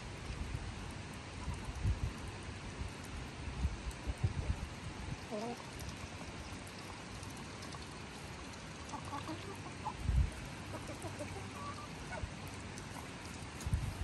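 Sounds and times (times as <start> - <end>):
poultry calling: 10.7 - 12.3.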